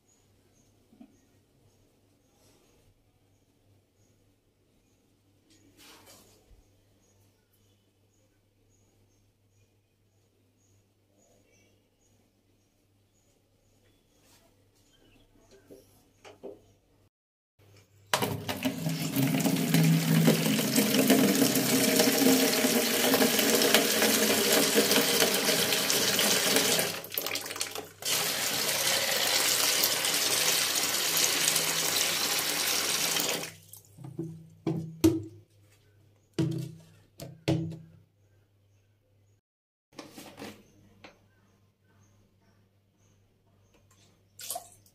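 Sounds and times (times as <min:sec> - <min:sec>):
tap water running into a bowl: 0:18.1 - 0:34.2.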